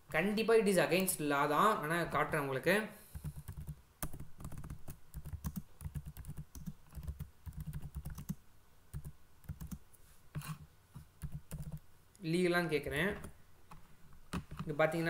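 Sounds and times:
computer keyboard typing: 3.1s - 9.8s, 11.2s - 11.8s.

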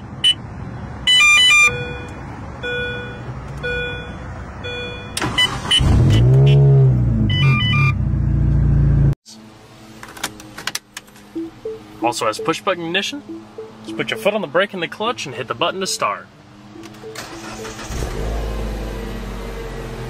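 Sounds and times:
car engine cranking and revving: 5.2s - 9.2s, 16.8s - 20.0s
soft beep: 11.4s - 12.6s, 13.2s - 14.4s.

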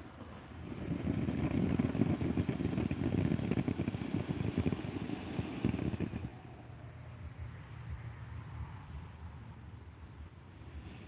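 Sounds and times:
firework fountain hissing and crackling: 0.0s - 6.8s, 9.7s - 11.0s.

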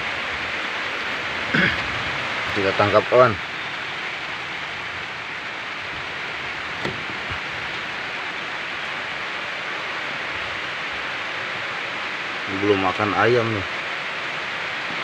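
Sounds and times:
rain hissing: 0.0s - 15.0s.

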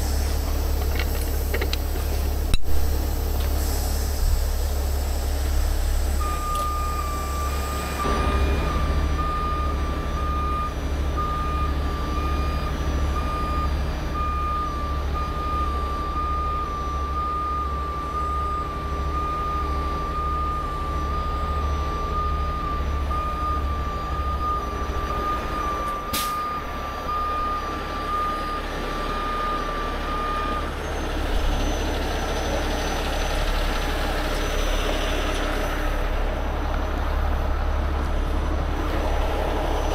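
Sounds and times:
diesel engine running: 0.0s - 39.9s
reversing alarm beeping: 5.0s - 36.0s.

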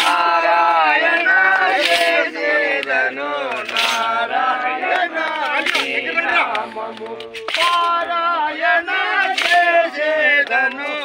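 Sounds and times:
men singing devotional song: 0.0s - 11.0s
sharp percussive stroke: 1.3s - 8.2s.

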